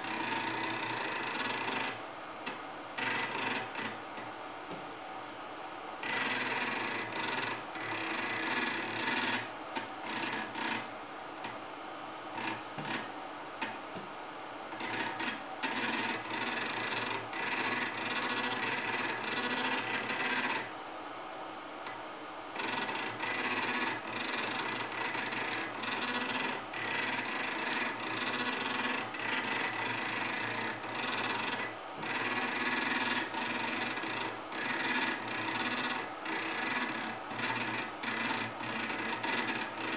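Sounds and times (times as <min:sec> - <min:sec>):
stepper motor buzzing rasp: 0:00.0 - 0:04.0, 0:06.0 - 0:10.9, 0:12.3 - 0:13.1, 0:14.7 - 0:20.7, 0:22.6 - 0:39.9.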